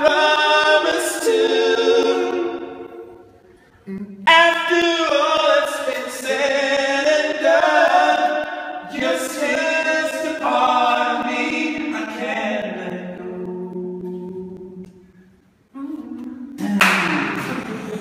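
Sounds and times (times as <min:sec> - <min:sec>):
men singing a cappella harmony: 0:00.0 - 0:03.2, 0:04.3 - 0:15.0.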